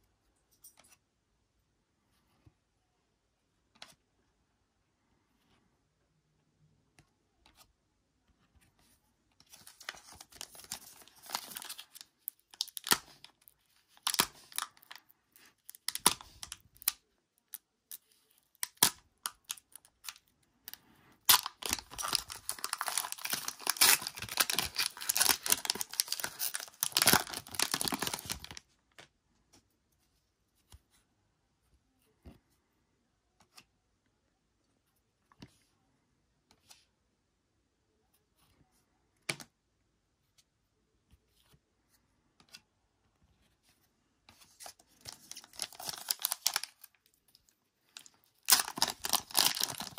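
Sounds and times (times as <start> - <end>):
foil wrapper crinkling and tearing: 9.7 - 15.0, 21.2 - 28.6, 45.1 - 47.4, 48.0 - 49.9.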